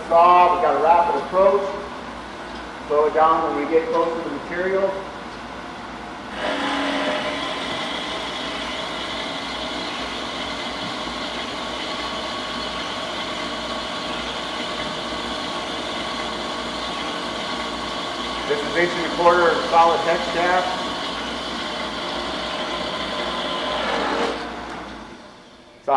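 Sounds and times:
band saw cutting metal bar: 6.3s - 24.9s.

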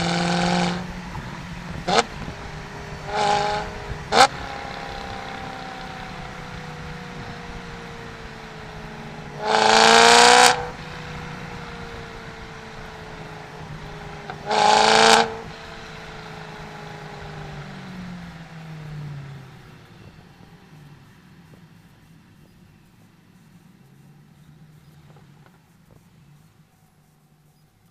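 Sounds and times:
loud engine revving: 0.0s - 21.6s
car engine cruising drone: 0.0s - 27.9s.

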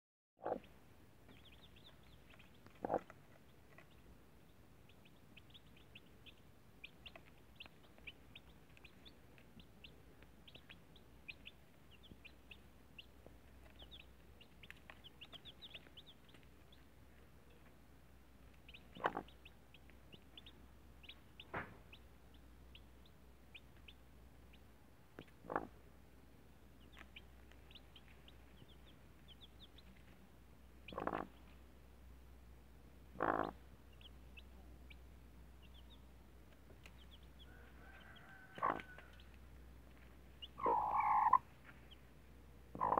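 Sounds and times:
chicks peeping: 0.4s - 17.8s, 18.4s - 25.8s, 26.6s - 31.6s, 33.0s - 42.1s, 42.7s - 42.9s
hen clucking low: 2.7s - 3.2s, 18.9s - 19.4s, 25.4s - 25.8s, 30.8s - 31.4s, 33.1s - 33.6s, 37.5s - 39.1s, 40.5s - 41.5s.

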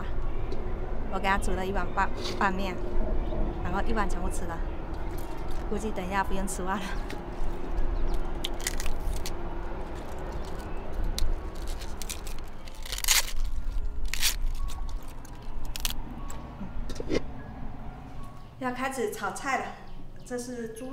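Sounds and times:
food crunching and scraping: 7.2s - 16.0s.

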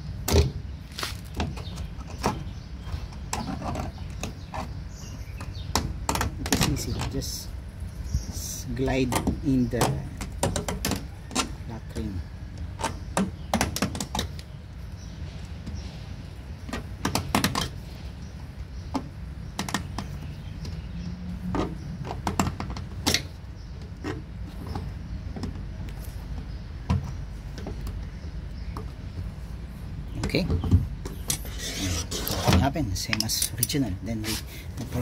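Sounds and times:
clicks knocks and scrapes: 0.3s - 4.8s, 9.1s - 11.6s, 30.2s - 35.0s.

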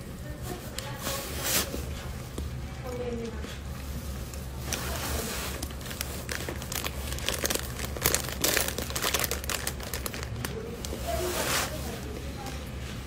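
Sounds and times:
plastic bag crinkling: 4.6s - 12.6s.

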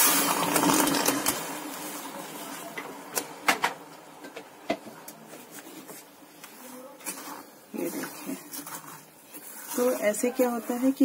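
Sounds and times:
water pouring into pot: 0.0s - 2.6s
spatula scraping wet sugar: 5.6s - 11.0s.

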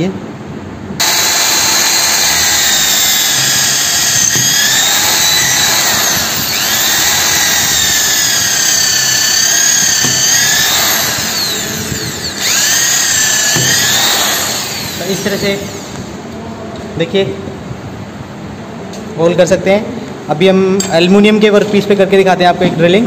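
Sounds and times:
electric drill boring into wood: 1.0s - 16.2s.

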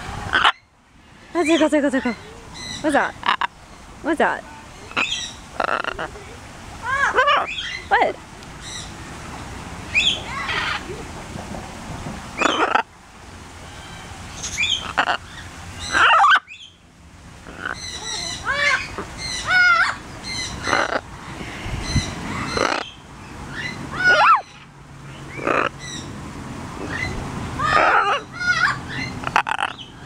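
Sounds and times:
macaw squawking and chattering: 4.8s - 6.2s, 17.5s - 21.1s, 21.9s - 23.0s, 26.9s - 29.9s.

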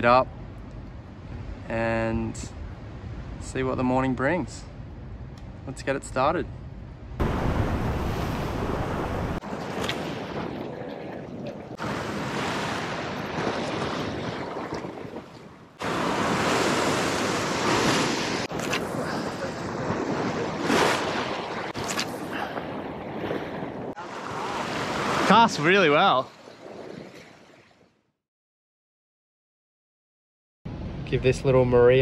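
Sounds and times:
wind buffeting microphone: 6.8s - 25.2s
ocean waves against rocks: 7.2s - 27.8s.

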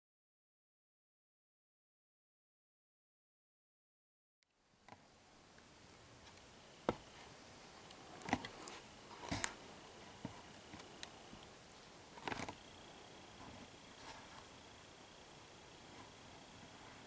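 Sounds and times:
background hiss: 4.4s - 17.0s.

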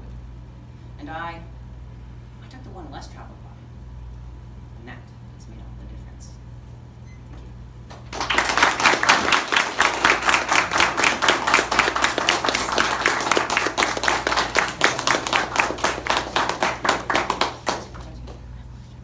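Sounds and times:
audience applauding: 7.9s - 18.4s.

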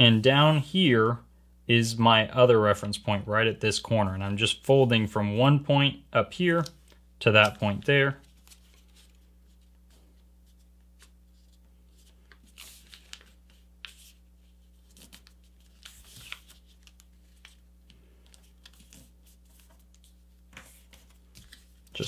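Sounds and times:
paper rustling and crinkling: 6.8s - 22.0s.

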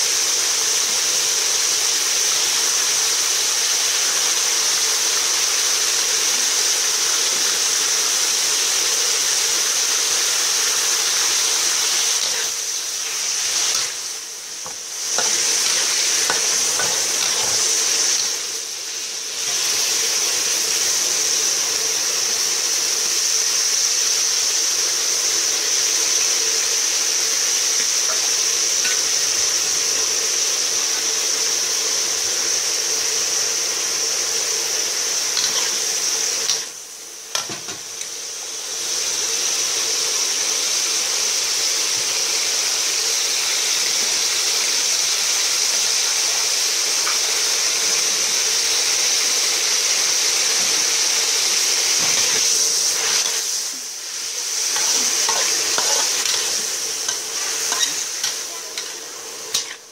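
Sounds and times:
meat sizzling in a wok: 0.0s - 59.9s
metal spatula scraping and tapping: 14.6s - 17.6s, 54.8s - 56.5s, 57.1s - 59.8s.

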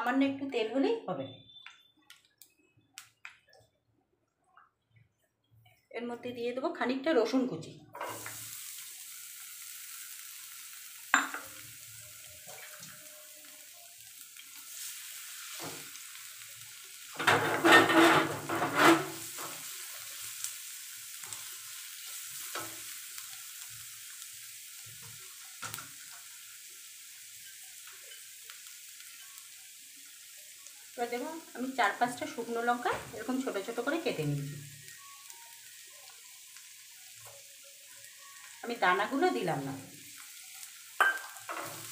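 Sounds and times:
garlic sizzling in a pan: 7.1s - 41.9s
spatula scraping a pan: 17.2s - 19.8s.

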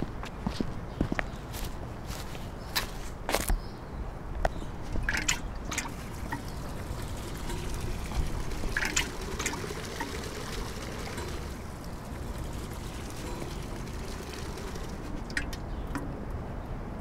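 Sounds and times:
water splashing onto foliage: 5.1s - 15.6s.

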